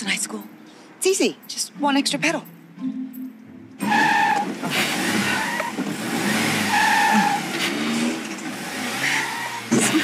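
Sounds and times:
tyres squealing: 3.8 - 8.0, 8.9 - 10.0
car engine revving: 3.8 - 10.0.

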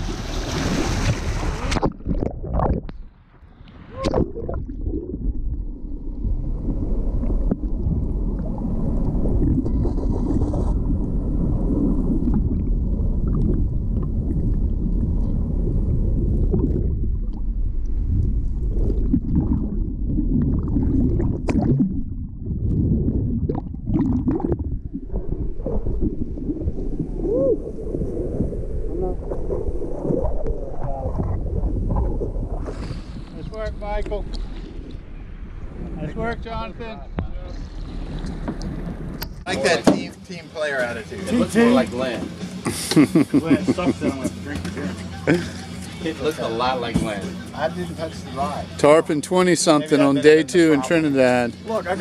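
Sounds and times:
underwater gurgling and rumbling: 0.0 - 39.5
wind noise: 0.0 - 39.5.

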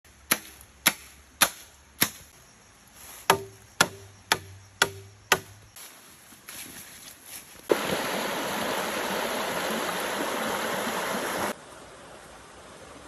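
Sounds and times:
sharp knocks: 3.3 - 5.5.

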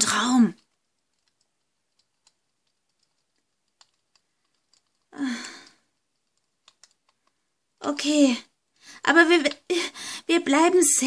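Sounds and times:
faint clicks: 0.1 - 8.1
person sighing: 5.1 - 5.8.

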